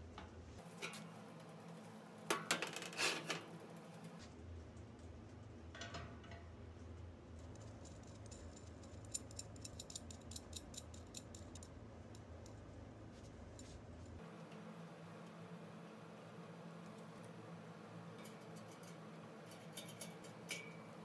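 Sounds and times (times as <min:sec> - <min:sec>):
metallic clicks of rod on mesh: 0:18.2 - 0:20.8.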